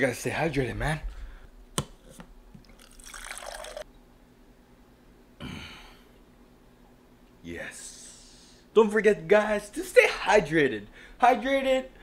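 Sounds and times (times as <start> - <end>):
water pouring into a cup: 2.6 - 3.9.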